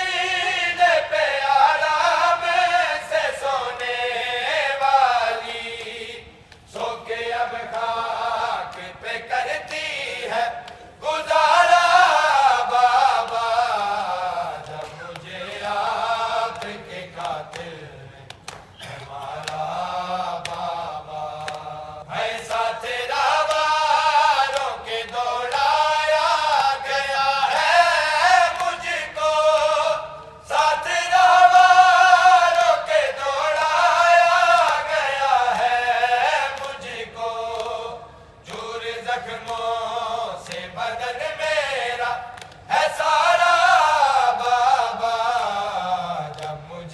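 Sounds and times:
men chanting a lament: 0:00.0 - 0:46.9.

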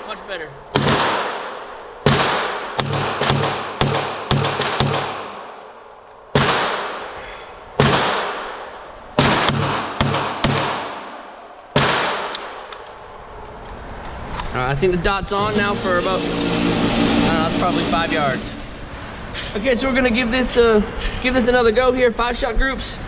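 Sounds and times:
gunshots echoing indoors: 0:00.7 - 0:13.2.

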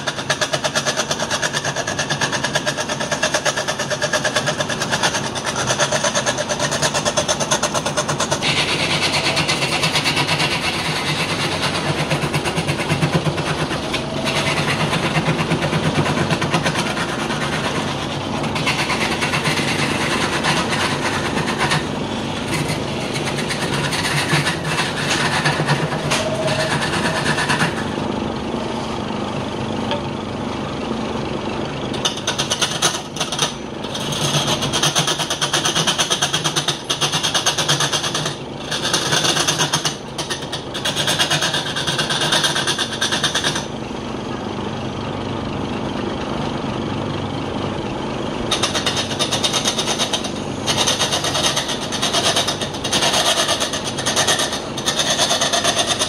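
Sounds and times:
turning tool scraping spinning wood: 0:00.0 - 0:28.1, 0:32.0 - 0:43.7, 0:48.5 - 0:56.0
wood lathe humming: 0:00.0 - 0:28.1.

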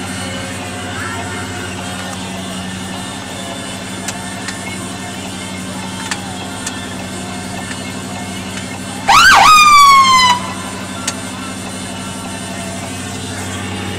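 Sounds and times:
low engine hum: 0:00.0 - 0:13.9
siren burst: 0:09.1 - 0:10.9.

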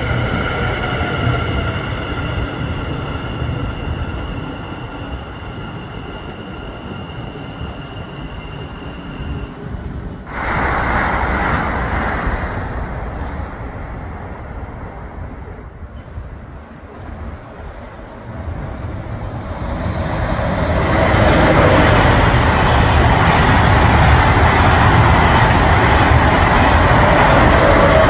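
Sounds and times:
train running rumble: 0:00.0 - 0:28.0
loud rushing noise: 0:10.3 - 0:14.9.

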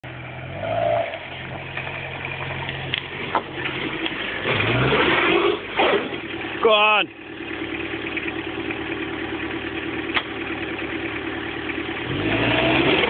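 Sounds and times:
truck engine revving: 0:00.0 - 0:06.4, 0:11.9 - 0:13.0.

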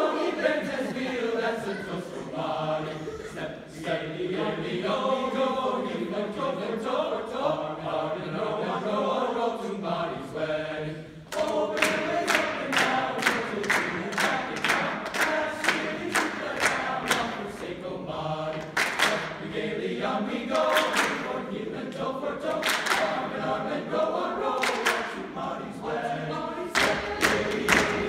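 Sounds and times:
men's choir singing: 0:00.0 - 0:28.0
rhythmic hand clapping: 0:11.3 - 0:28.0.

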